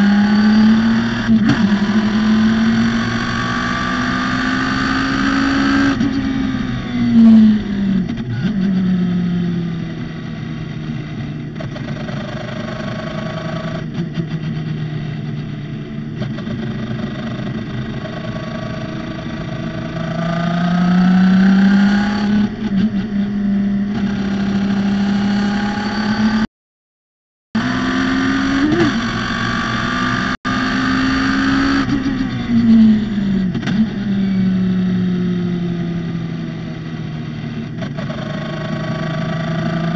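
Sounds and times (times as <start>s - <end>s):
race car engine revving: 0.0s - 9.2s.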